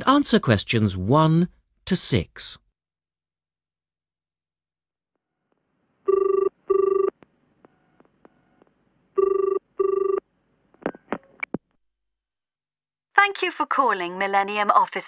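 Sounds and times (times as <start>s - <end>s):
telephone ringing: 6.1s - 8.6s, 9.2s - 10.2s.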